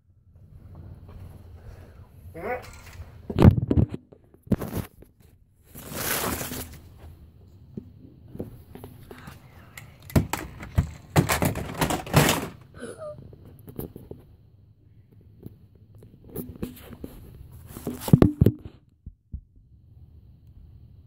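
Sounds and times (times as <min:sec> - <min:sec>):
rustling: 0:00.5 - 0:07.2
clattering knocks: 0:10.0 - 0:12.6
objects thumping and knocking: 0:10.0 - 0:12.7, 0:16.2 - 0:19.5.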